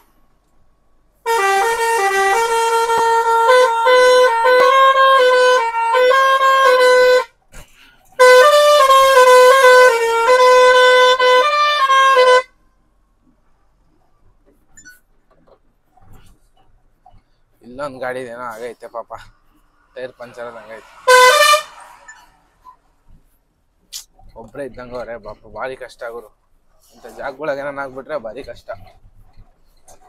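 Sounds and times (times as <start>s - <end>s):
truck musical horn melody: 1.2s - 7.4s, 8.0s - 12.6s, 20.4s - 22.4s.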